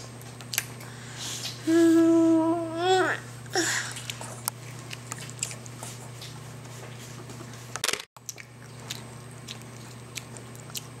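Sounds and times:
steady low hum: 0:00.0 - 0:11.0
child chewing: 0:03.7 - 0:06.4, 0:08.2 - 0:11.0.

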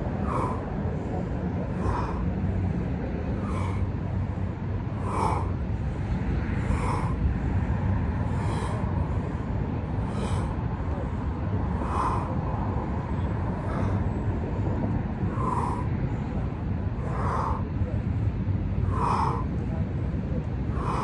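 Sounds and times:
person breathing hard: 0:00.0 - 0:19.8, 0:20.6 - 0:21.0
steady low rumble: 0:00.0 - 0:21.0
sharp exhales: 0:00.2 - 0:00.7, 0:03.4 - 0:04.0, 0:08.3 - 0:08.9, 0:10.0 - 0:10.6, 0:11.8 - 0:12.4, 0:18.9 - 0:19.5.

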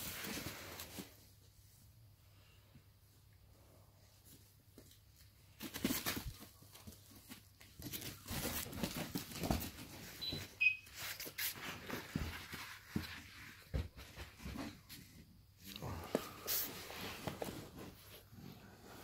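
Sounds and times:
dogs rustling and pawing: 0:04.0 - 0:15.2.

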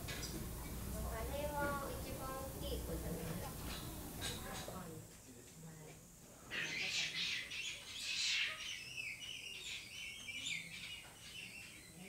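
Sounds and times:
birds chirping: 0:06.4 - 0:12.0.

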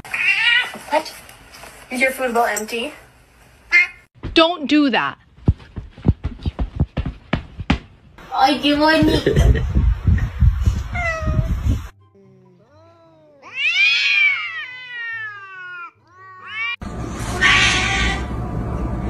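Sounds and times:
cat meowing: 0:00.1 - 0:00.8, 0:11.0 - 0:11.6, 0:12.6 - 0:18.3.

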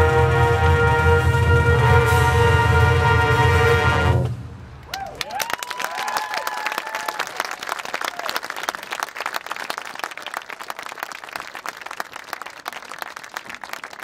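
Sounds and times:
crowd applauding: 0:04.9 - 0:14.0.

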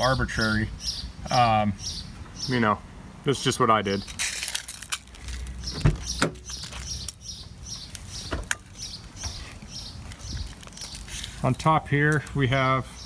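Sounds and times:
bird chirping: 0:00.0 - 0:02.7, 0:05.5 - 0:11.4
sharp knocks and thumps: 0:08.2 - 0:08.6.

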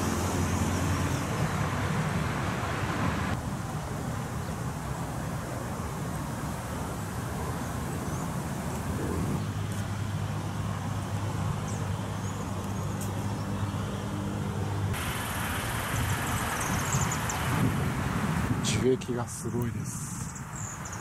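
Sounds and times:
vehicle engine humming: 0:00.0 - 0:18.7
traffic rumble: 0:00.0 - 0:21.0
bright hiss: 0:15.0 - 0:17.8.

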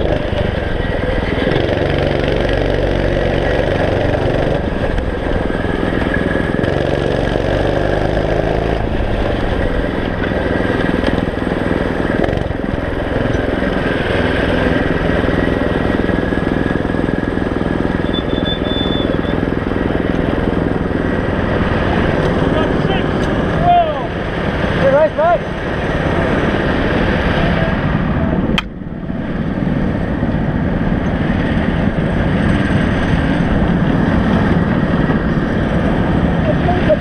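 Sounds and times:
small kart engine revving: 0:00.0 - 0:28.2.

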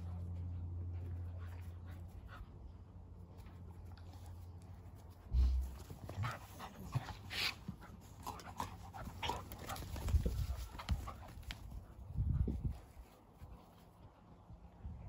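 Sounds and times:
dogs panting and scuffling: 0:00.0 - 0:14.4.

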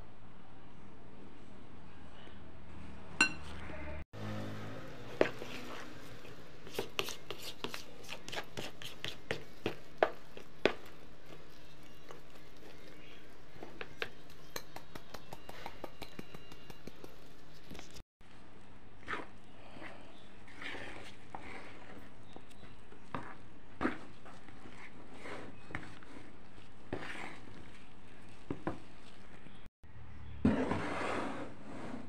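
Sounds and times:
spatula scraping a mixing bowl: 0:05.1 - 0:13.9, 0:19.0 - 0:29.3, 0:30.5 - 0:32.0.

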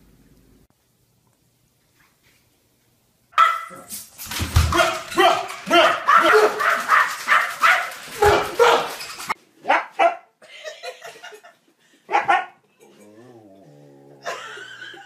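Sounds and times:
dog barking: 0:03.4 - 0:03.9, 0:04.7 - 0:09.0, 0:09.6 - 0:10.4, 0:12.1 - 0:12.6.

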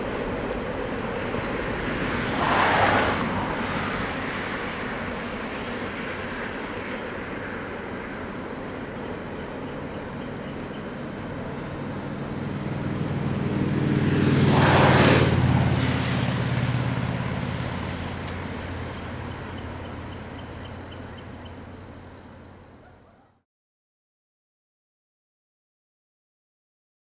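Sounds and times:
vehicle passing by: 0:00.0 - 0:06.5, 0:11.1 - 0:22.7.

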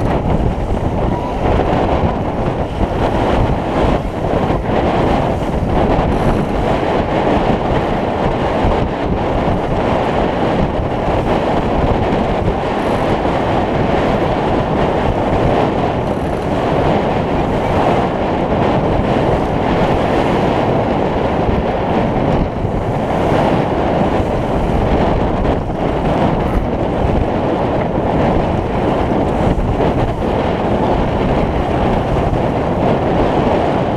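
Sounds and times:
water splashing along boat hull: 0:00.0 - 0:33.9
wind buffeting microphone: 0:00.0 - 0:33.9.

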